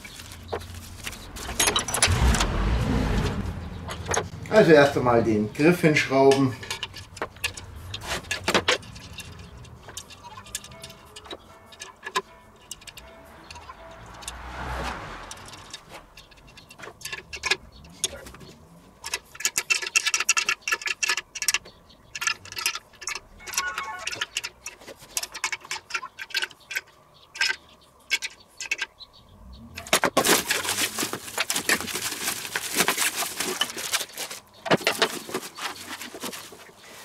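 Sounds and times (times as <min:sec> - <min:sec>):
plastic packaging crinkling: 0:00.0 - 0:01.6, 0:30.2 - 0:36.7.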